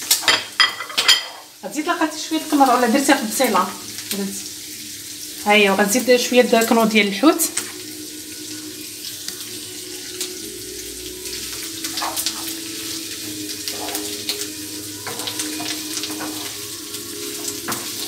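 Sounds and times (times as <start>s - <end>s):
food sizzling in a frying pan: 0.0s - 18.0s
wooden spatula scraping a pan: 11.9s - 12.5s, 13.6s - 14.4s, 15.0s - 16.7s.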